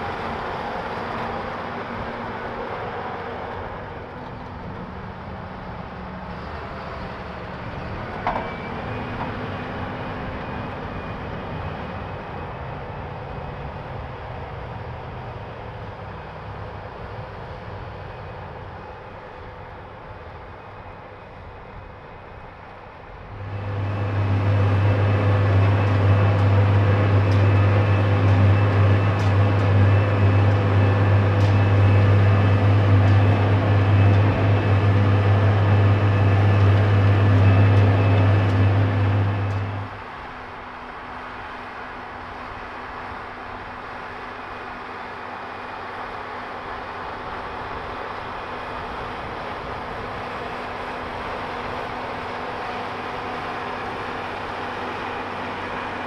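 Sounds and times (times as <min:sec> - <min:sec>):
tractor diesel engine: 0:00.0 - 0:13.4, 0:23.0 - 0:56.0
short squeak: 0:08.2 - 0:09.2.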